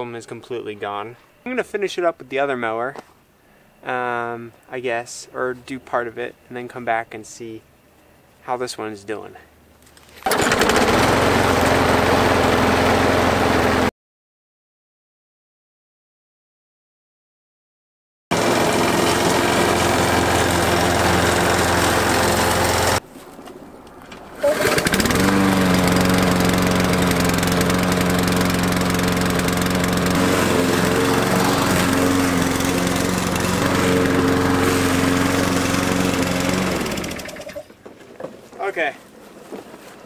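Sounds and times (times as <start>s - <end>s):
lawn mower engine running: 10.2s - 13.9s, 18.3s - 23.0s, 24.1s - 37.8s.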